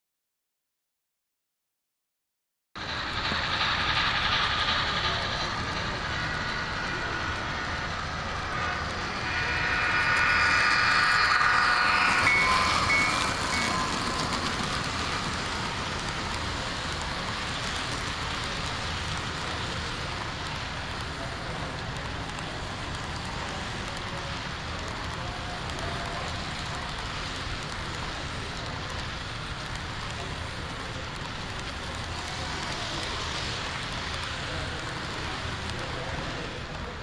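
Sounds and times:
model train wheels rolling: 2.8 - 37.0
high steady tone: 2.9 - 16.6.

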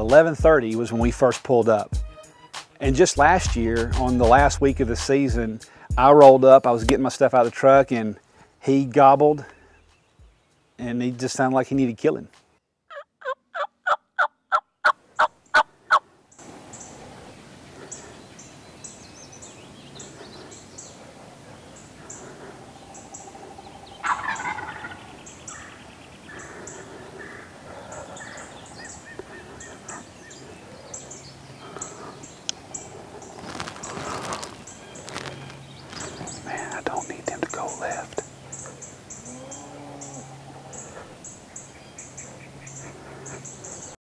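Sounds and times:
turkey call yelps: 12.9 - 16.0, 23.0 - 30.6
turkey gobbling: 12.9 - 16.0, 21.0 - 33.8.

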